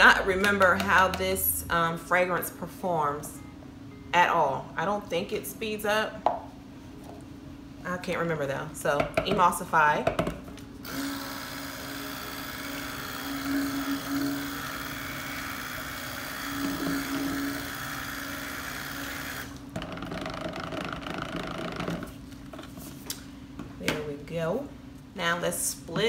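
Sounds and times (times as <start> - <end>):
stick blender humming: 10.8 - 22.1.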